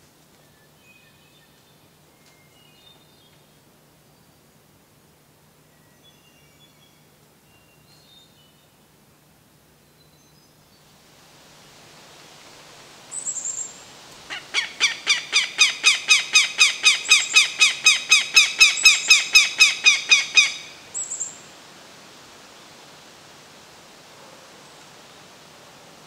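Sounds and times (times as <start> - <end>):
hawk alarm call: 14.3 - 20.8.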